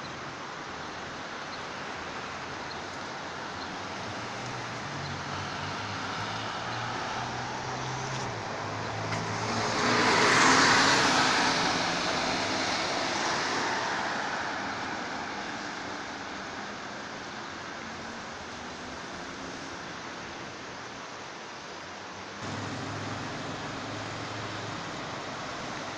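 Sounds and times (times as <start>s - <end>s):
bus engine hum: 22.4s - 25.9s.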